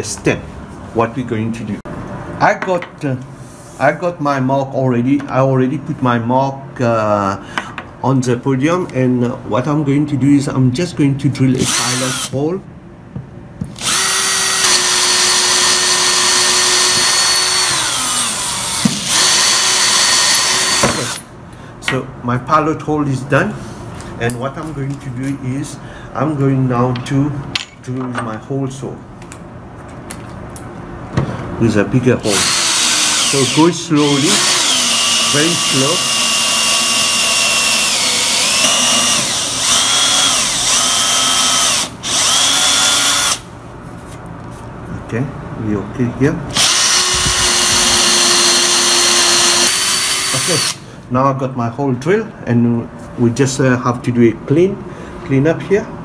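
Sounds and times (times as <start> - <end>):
cordless drill boring into wood: 11.6 - 12.3, 13.8 - 21.2, 32.2 - 43.5, 46.5 - 50.8.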